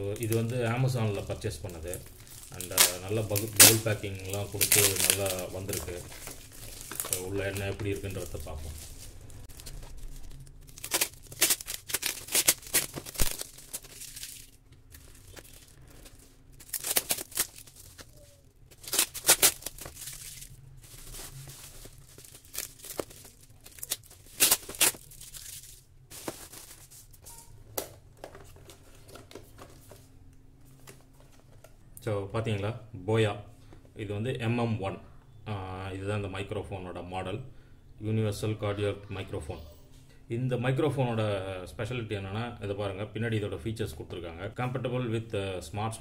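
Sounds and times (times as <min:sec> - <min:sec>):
bubble wrap and tape crinkling: 0:00.0 - 0:31.8.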